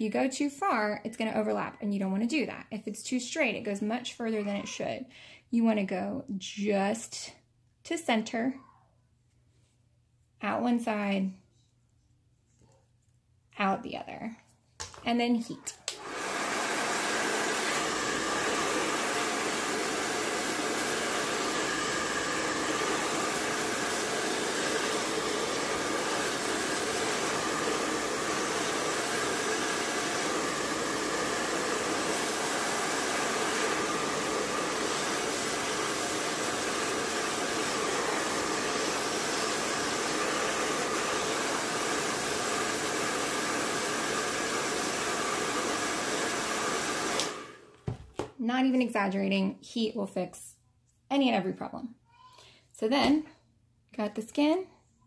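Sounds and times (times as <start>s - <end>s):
blow dryer running: 15.9s - 47.7s.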